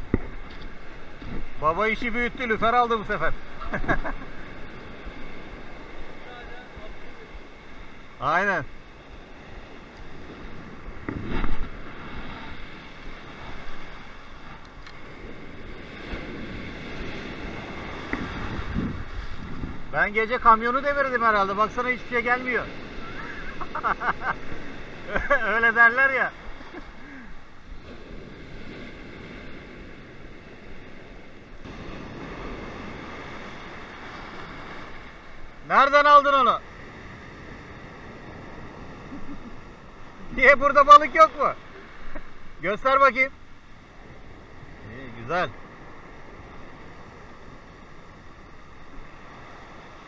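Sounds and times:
wind buffeting microphone: 0:00.0 - 0:20.7, 0:26.3 - 0:35.8, 0:36.5 - 0:42.7
surf breaking on pebbly shore: 0:00.0 - 0:50.0.

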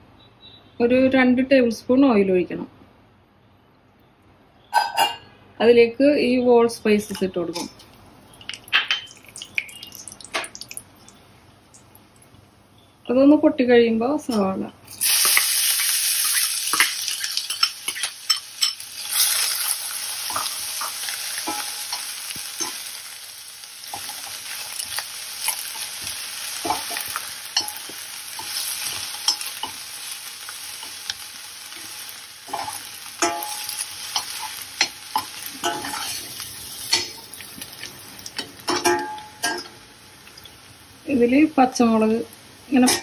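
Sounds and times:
onion sizzling in hot oil: 0:14.9 - 0:43.0
metal spoon scraping a pan: 0:16.2 - 0:23.0, 0:23.9 - 0:29.8, 0:30.8 - 0:37.4.

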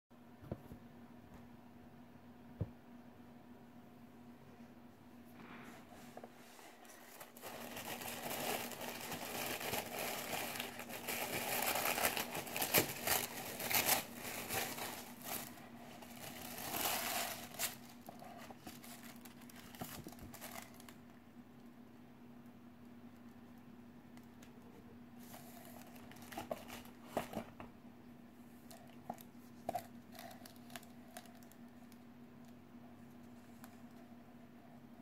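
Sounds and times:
tissue paper crinkling: 0:06.4 - 0:21.0, 0:25.3 - 0:27.4.

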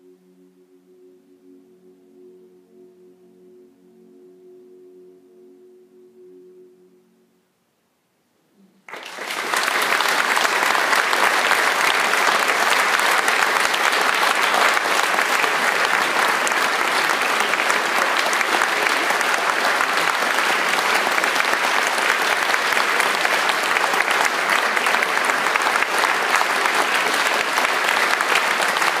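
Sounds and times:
audience applauding: 0:08.9 - 0:29.0.

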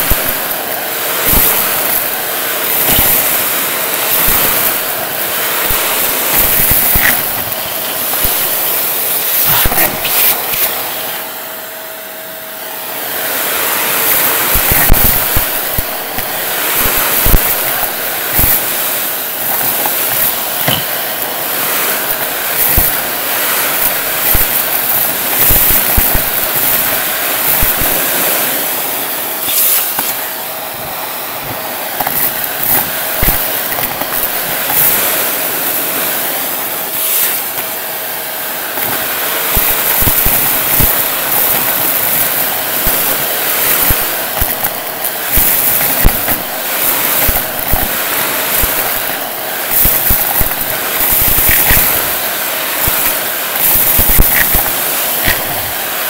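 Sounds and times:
debris clicking up vacuum hose: 0:00.0 - 0:11.3, 0:13.4 - 0:56.0
vacuum cleaner suction hiss: 0:00.0 - 0:56.0.

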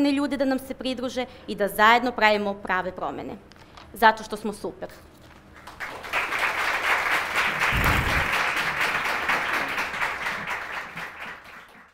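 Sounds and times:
audience applauding: 0:05.6 - 0:11.9
low thump: 0:07.7 - 0:08.4.

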